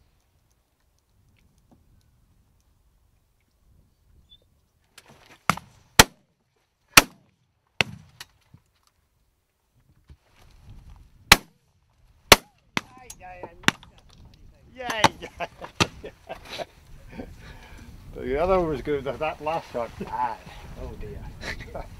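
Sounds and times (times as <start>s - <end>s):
shotgun shots: 5.6s - 6.2s, 7.0s - 7.2s, 11.3s - 11.5s, 12.3s - 12.9s.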